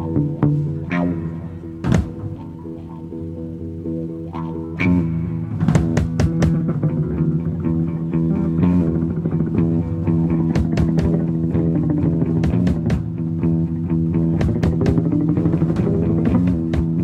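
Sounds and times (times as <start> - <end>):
electric guitar droning: 0.0 - 17.0
drum and cymbal hits: 5.6 - 6.6, 10.5 - 11.3.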